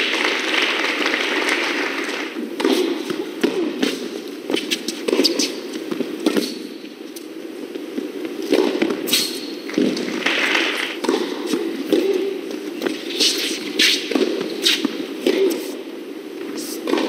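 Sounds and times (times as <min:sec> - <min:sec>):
racket striking tennis ball: 0:02.4 - 0:06.7, 0:08.5 - 0:15.7
shoes squeaking on court: 0:03.8 - 0:07.3, 0:08.5 - 0:15.6.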